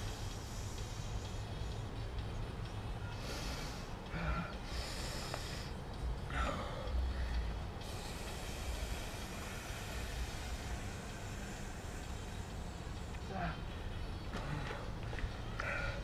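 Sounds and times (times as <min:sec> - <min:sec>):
man breathing hard: 0:00.0 - 0:02.0, 0:03.0 - 0:16.0.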